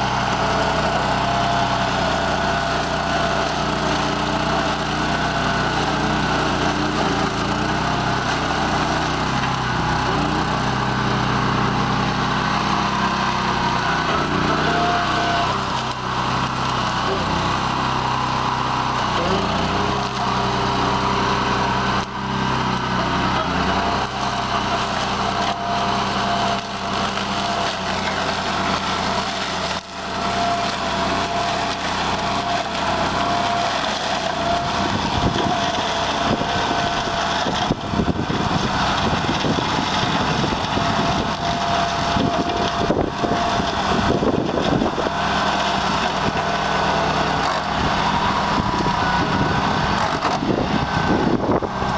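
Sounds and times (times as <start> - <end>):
mower high whine: 0.0 - 51.9
tractor engine running under load: 0.0 - 51.9
crackling of stalks being chopped: 21.9 - 46.7.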